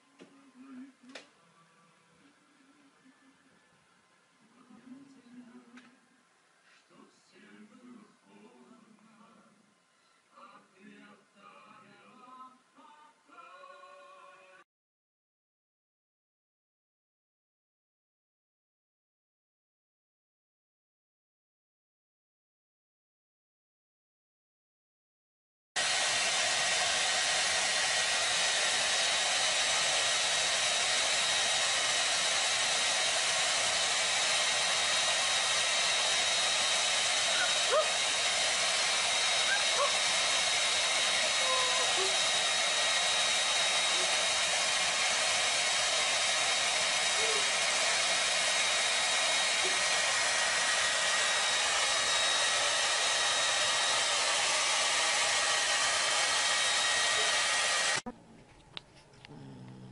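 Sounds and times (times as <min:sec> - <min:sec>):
hair dryer running: 0:25.8 - 0:58.1.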